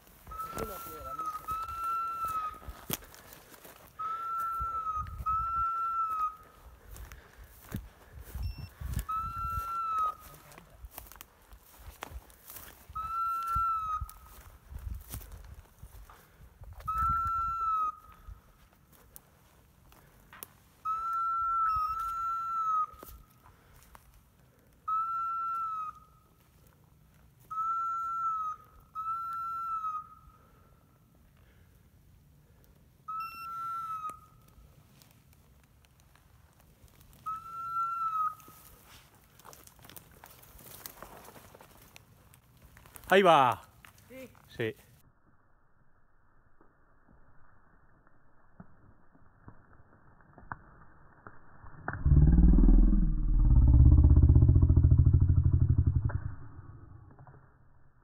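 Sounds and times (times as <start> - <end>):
long steady whistle notes: 20.8 - 23.2, 24.8 - 26.4, 27.4 - 30.9, 33.0 - 34.8, 37.2 - 38.9.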